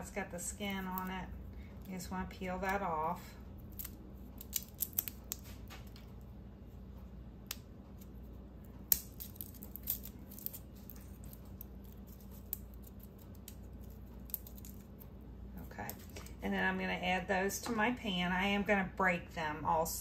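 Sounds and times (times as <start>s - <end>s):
crackling of garlic skin: 0.0s - 6.3s, 7.4s - 16.4s
steady low hum: 0.0s - 20.0s.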